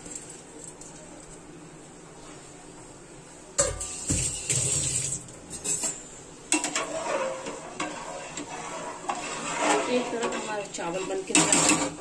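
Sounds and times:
metal ladle scraping a pot: 5.5 - 12.0.

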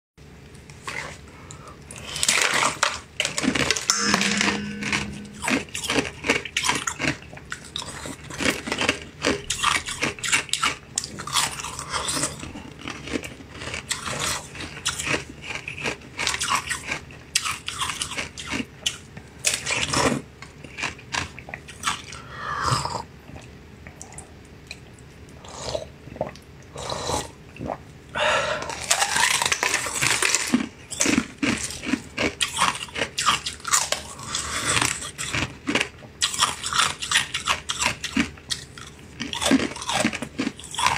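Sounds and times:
person chewing jelly sweet: 7.0 - 27.8, 28.6 - 40.9.

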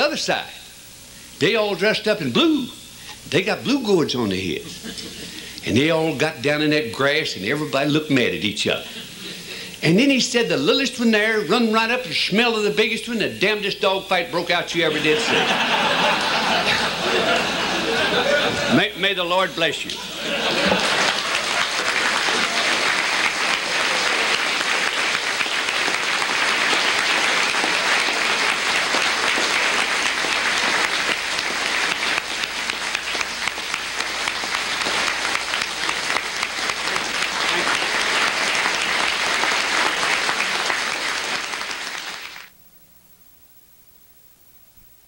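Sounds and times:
audience applauding: 14.8 - 18.9, 20.0 - 42.5.

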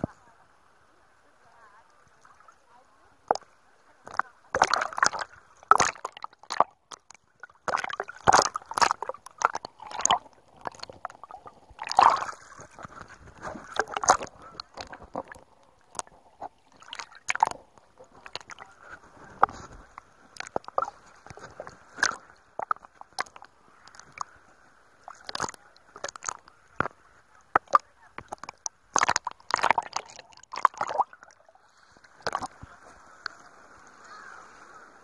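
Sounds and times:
faint steady water wash: 0.0 - 35.0
water splats and slaps: 3.2 - 24.3, 25.0 - 31.4, 32.0 - 34.1
seawater sloshing and splashing: 4.0 - 35.0.

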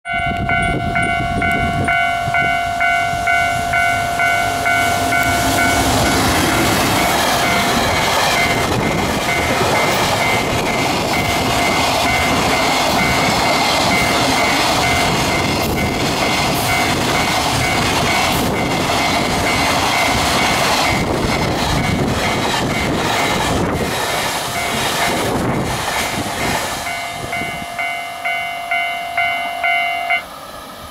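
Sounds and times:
level crossing warning bell: 0.0 - 23.0, 24.5 - 25.3, 26.4 - 30.3
pulsing ringing tone: 0.1 - 21.1, 26.8 - 30.3
freight train rumbling past: 0.1 - 30.9.

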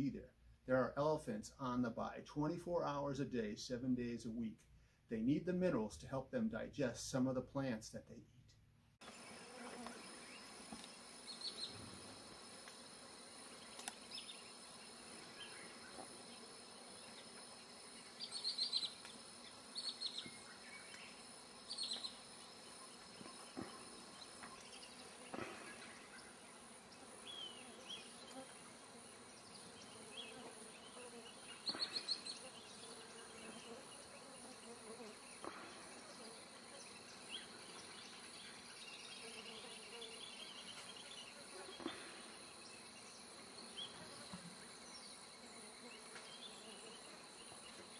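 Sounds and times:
high insect whine: 9.0 - 47.9
high chirping calls: 18.0 - 19.0.

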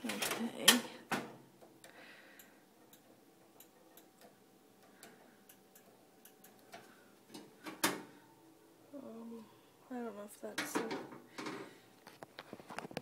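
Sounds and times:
gas stove igniter ticking: 1.6 - 7.8.

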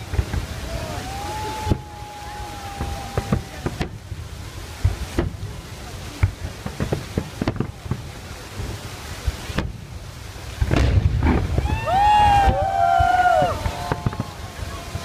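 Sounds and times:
fireworks bangs and crackles: 0.0 - 15.0
high drawn-out cries: 11.6 - 15.0.

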